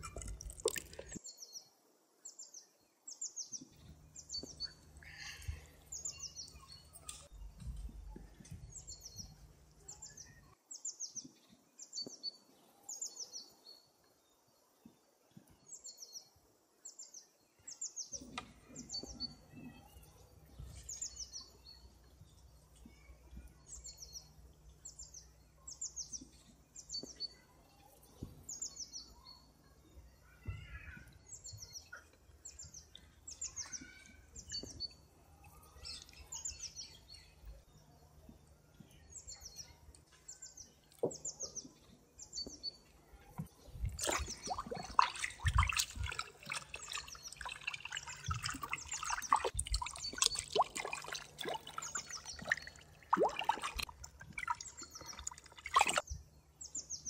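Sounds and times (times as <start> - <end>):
water sloshing and splashing: 0.0 - 1.2, 43.3 - 56.1
bird chirping: 16.9 - 57.0.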